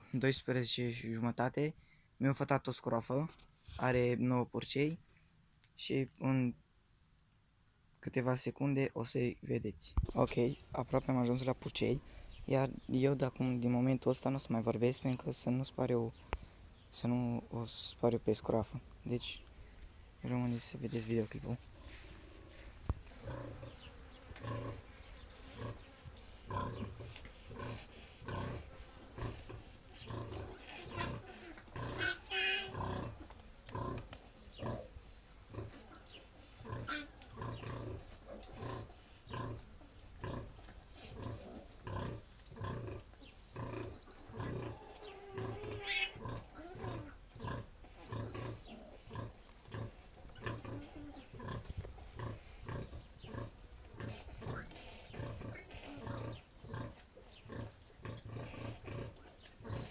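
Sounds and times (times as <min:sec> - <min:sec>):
sow grunting: 0:21.8 - 0:59.9
piglet squealing: 0:30.7 - 0:33.0, 0:45.2 - 0:47.2.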